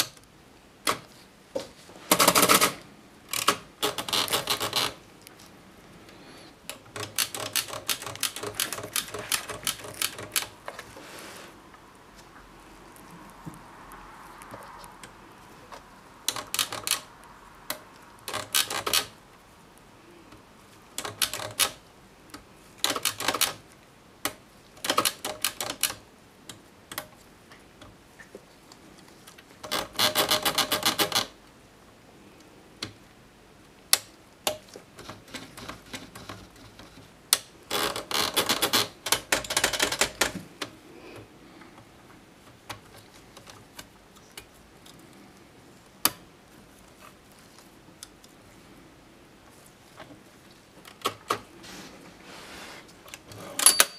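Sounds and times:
typewriter carriage ratcheting clicks: 0:02.1 - 0:05.0, 0:06.7 - 0:10.6, 0:16.3 - 0:17.1, 0:18.2 - 0:19.2, 0:21.0 - 0:21.8, 0:22.8 - 0:23.6, 0:24.8 - 0:26.0, 0:29.6 - 0:31.4, 0:37.7 - 0:40.4.

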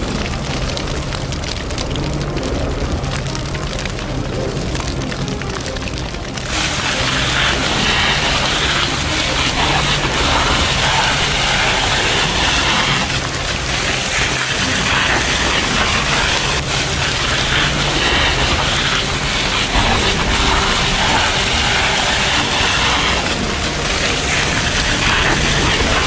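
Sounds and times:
low rumble: 0:00.0 - 0:26.0
water jet rushing hiss: 0:06.0 - 0:26.0.

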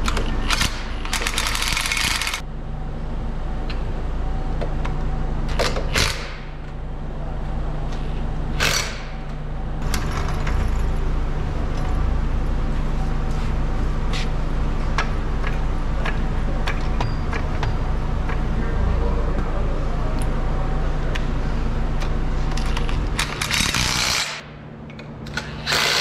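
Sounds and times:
engine humming: 0:00.0 - 0:25.7
impact wrench burst: 0:00.4 - 0:02.4, 0:08.6 - 0:09.2, 0:23.2 - 0:24.5, 0:25.3 - 0:26.0.

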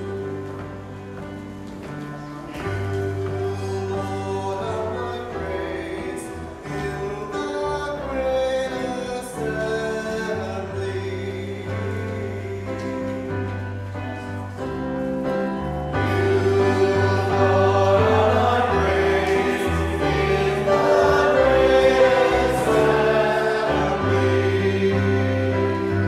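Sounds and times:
sustained chordal accompaniment: 0:15.4 - 0:26.0
choir singing: 0:15.8 - 0:26.0.

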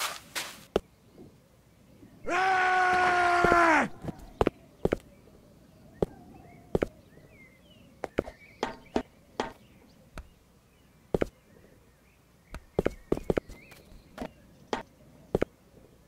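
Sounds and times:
sharp knocks: 0:08.1 - 0:09.6.

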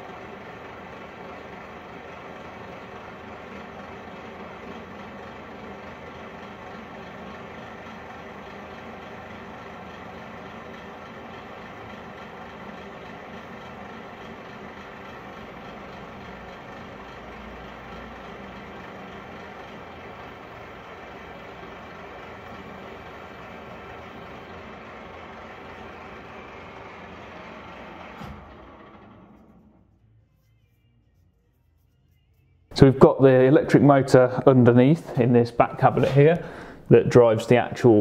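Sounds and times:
metal lathe cutting steel: 0:00.0 - 0:29.7.

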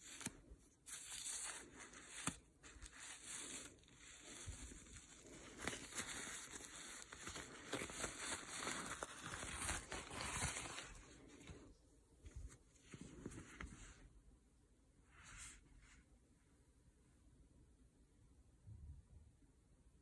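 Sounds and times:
fabric rustling and rubbing: 0:00.0 - 0:14.1, 0:15.1 - 0:16.1.

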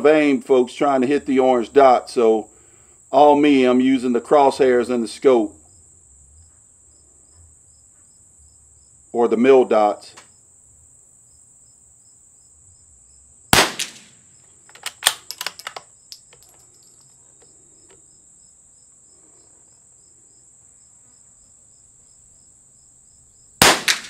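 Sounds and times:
high insect drone: 0:00.2 - 0:24.0
rifle shot: 0:13.5 - 0:14.2, 0:14.8 - 0:15.8, 0:23.6 - 0:24.0
rifle bolt metallic clicks: 0:14.7 - 0:17.1.

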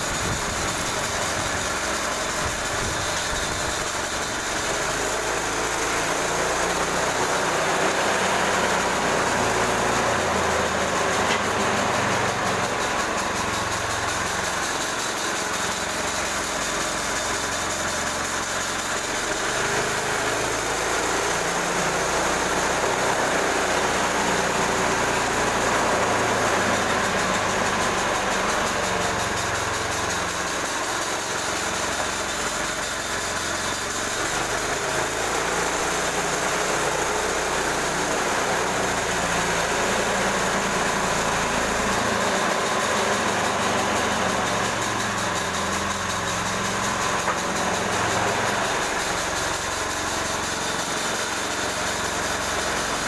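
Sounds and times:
sawmill engine running: 0:00.0 - 0:53.0.

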